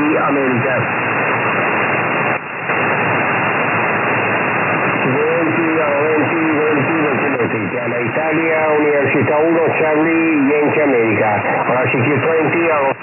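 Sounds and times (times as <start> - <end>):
person talking over radio: 0.0 - 0.9, 5.0 - 13.0
radio static hiss: 0.0 - 13.0.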